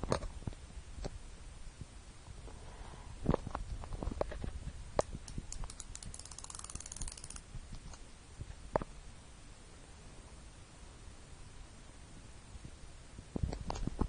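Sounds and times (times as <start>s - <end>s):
insulin pen clicking: 5.3s - 7.4s.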